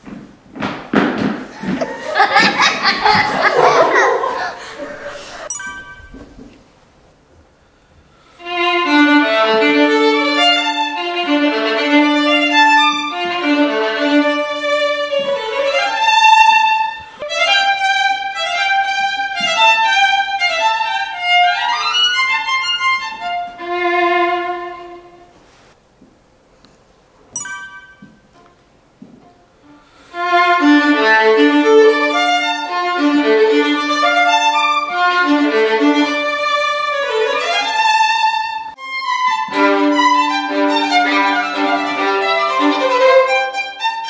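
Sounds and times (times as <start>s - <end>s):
solo violin melody: 8.4s - 25.3s, 29.2s - 44.0s.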